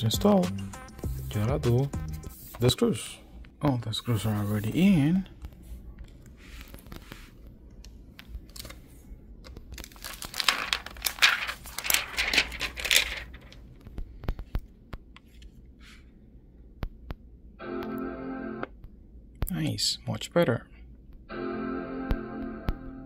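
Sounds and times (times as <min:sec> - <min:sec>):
plastic sheet crinkling and tearing: 0:09.4 - 0:13.8.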